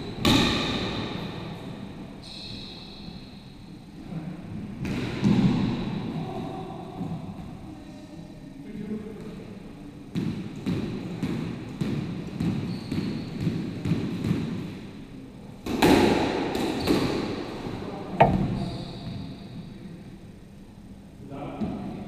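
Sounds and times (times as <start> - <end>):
squash ball bouncing on wooden floor: 18.2 - 18.6
racket striking ball: 18.2 - 18.8.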